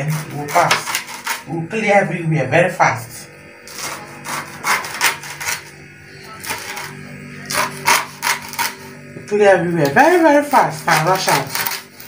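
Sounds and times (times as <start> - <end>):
knife cutting through leaves: 0.0 - 1.5, 3.7 - 5.8, 6.4 - 8.9, 9.8 - 12.0.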